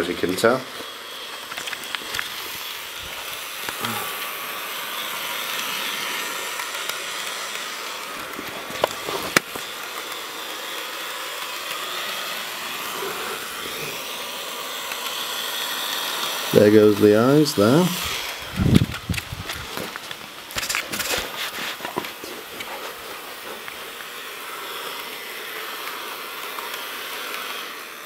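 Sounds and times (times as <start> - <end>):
small electric motor whirring: 0.0 - 28.0
sharp clicks: 0.8 - 2.6.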